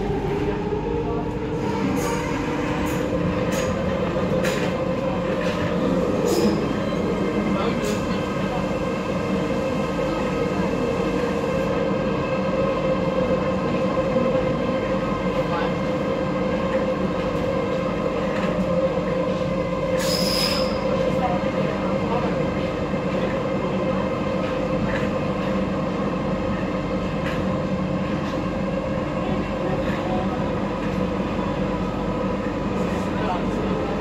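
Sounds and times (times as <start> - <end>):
wheel and rail rumble: 0.0 - 34.0
high squeal: 20.0 - 20.9.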